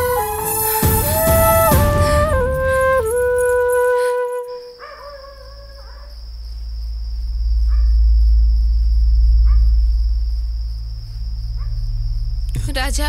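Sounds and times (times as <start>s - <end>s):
crickets chirping: 0.0s - 13.0s
deep low drone: 5.2s - 13.0s.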